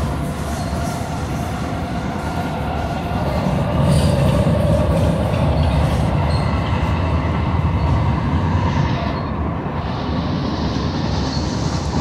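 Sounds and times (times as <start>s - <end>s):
train wheels rumbling on track: 0.0s - 12.0s
high wheel squeaks: 5.5s - 7.0s.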